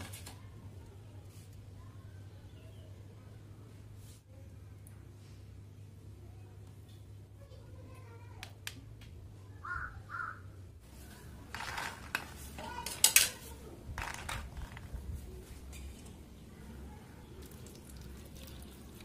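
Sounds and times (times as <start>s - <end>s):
seeds clattering in a plastic tray: 11.4s - 13.3s, 14.0s - 15.0s.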